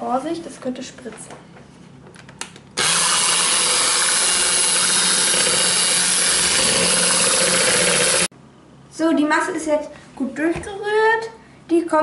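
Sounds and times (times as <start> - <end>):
electric hand mixer whisking: 2.8 - 8.3.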